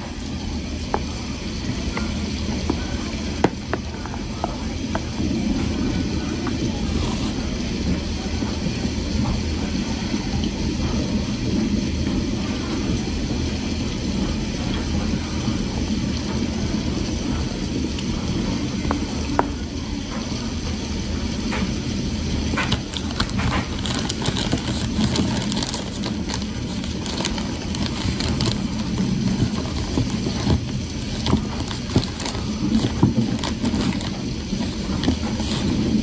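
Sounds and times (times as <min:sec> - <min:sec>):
steady low hum: 0:00.0 - 0:36.0
wet chewing and mouth sounds: 0:22.5 - 0:36.0.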